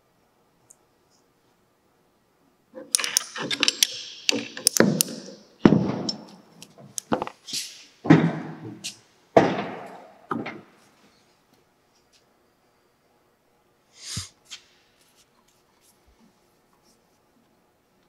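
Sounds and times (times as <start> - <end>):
metallic clicks and clanks: 2.8 - 7.2.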